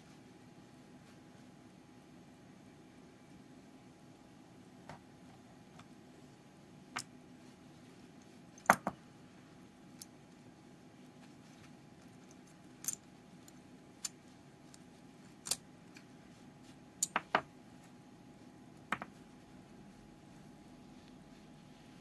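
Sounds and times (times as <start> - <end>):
small metal parts clicking: 12.0 - 16.0.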